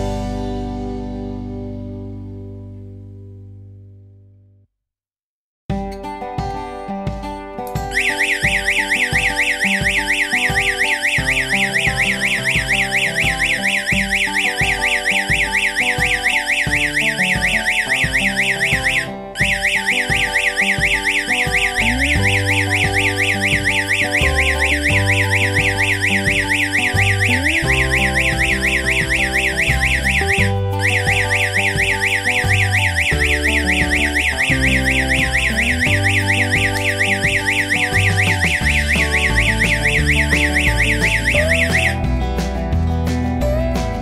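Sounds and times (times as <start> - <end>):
electronic alarm siren warbling: 7.9 - 42.0.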